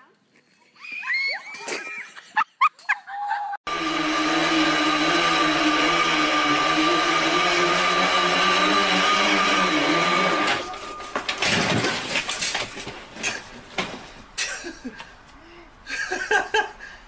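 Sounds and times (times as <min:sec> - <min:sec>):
bicycle trainer whirring: 0:03.7 - 0:10.8
bike crashing to floor: 0:10.5 - 0:14.2.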